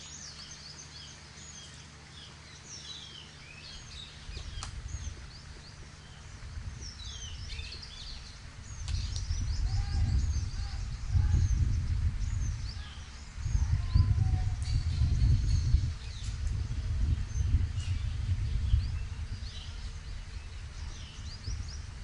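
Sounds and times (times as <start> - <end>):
low rumbling noise: 0.0 - 22.0
small birds chirping: 0.0 - 22.0.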